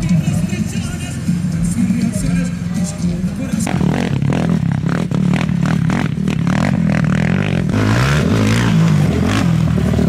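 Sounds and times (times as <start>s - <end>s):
quad engine revving past: 3.6s - 10.0s.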